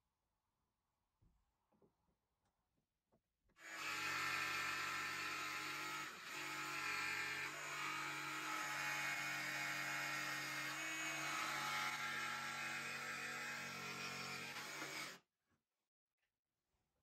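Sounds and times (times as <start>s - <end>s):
jigsaw cutting wood: 3.6s - 15.2s.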